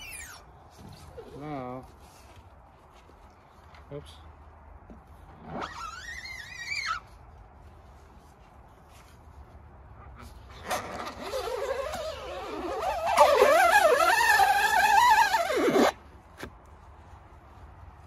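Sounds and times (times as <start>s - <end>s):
rubber squeegee squeaking: 0.0s - 1.4s, 5.4s - 7.1s, 10.5s - 16.5s.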